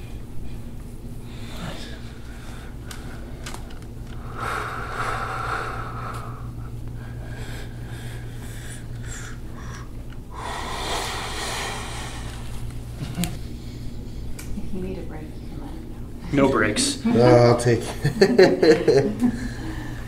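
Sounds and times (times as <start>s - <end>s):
man exhaling hard: 10.4s - 12.4s.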